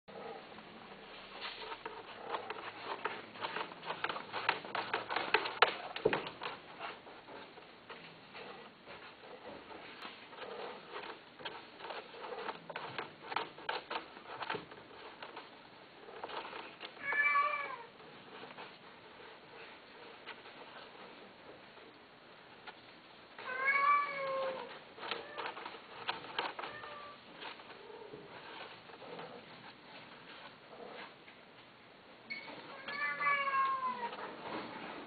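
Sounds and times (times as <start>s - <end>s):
scattered clicks and taps: 1.7s - 6.6s, 10.8s - 15.6s, 24.5s - 27.8s
cat meowing: 17.0s - 17.9s, 23.4s - 25.5s, 32.7s - 34.2s.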